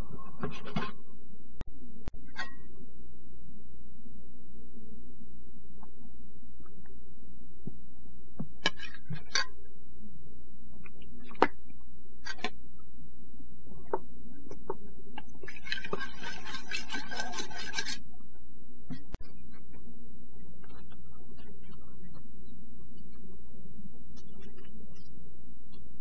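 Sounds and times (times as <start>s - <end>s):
steady low hum: 0.0s - 26.0s
spoon scraping around bowl: 15.5s - 18.0s.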